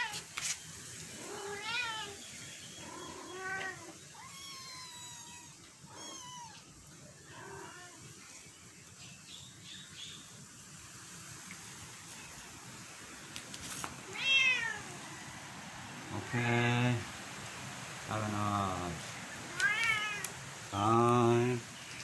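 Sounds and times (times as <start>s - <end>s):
kittens mewing: 1.1s - 2.2s, 2.8s - 8.2s, 19.4s - 20.4s.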